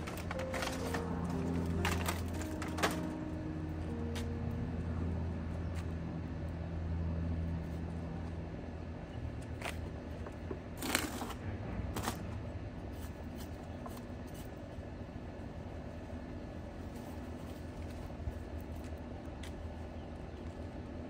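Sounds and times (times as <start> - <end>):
rustles of hands potting flowers: 0.0 - 3.2, 16.6 - 20.9
traffic engine hum: 0.0 - 21.0.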